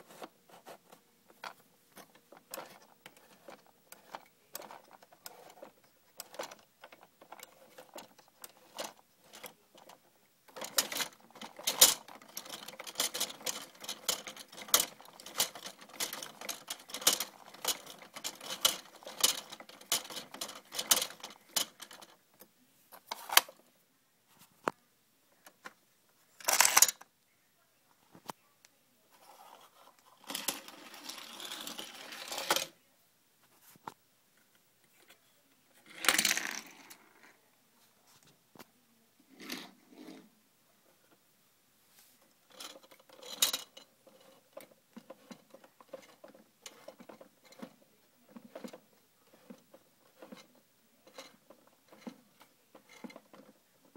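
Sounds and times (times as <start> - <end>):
plastic toy drum clicking and rattling: 0.0 - 23.6, 26.4 - 27.0, 29.3 - 32.7, 35.8 - 37.3, 42.4 - 53.9
plastic toy parts clicking: 1.3 - 22.2, 26.4 - 27.1, 30.1 - 32.7, 35.9 - 37.0, 42.5 - 53.6.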